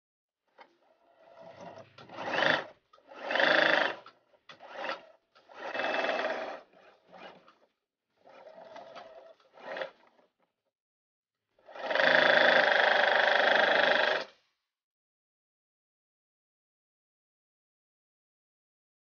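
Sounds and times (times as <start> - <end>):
sewing machine stitching: 0.5 - 10.5, 11.6 - 14.4.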